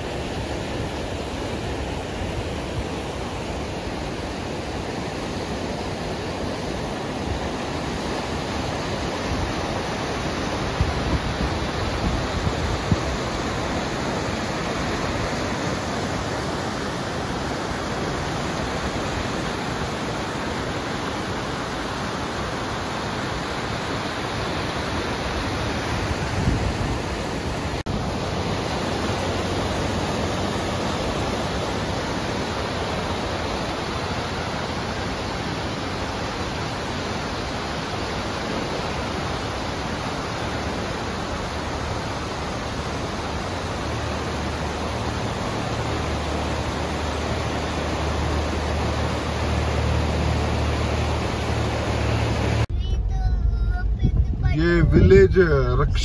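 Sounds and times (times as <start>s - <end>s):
stream rushing over rocks: 0.0s - 52.7s
low thumps: 52.7s - 56.0s.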